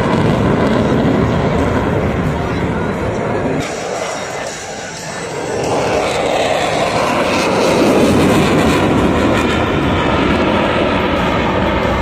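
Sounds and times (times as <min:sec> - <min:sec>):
jet flying overhead: 0:00.0 - 0:12.0.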